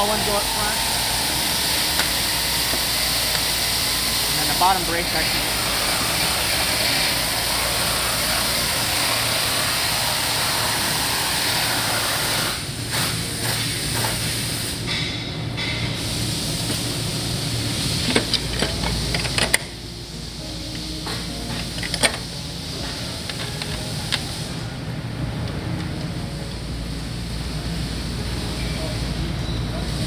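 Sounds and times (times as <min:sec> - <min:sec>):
loud hiss: 0:00.0 - 0:15.0, 0:15.8 - 0:24.9.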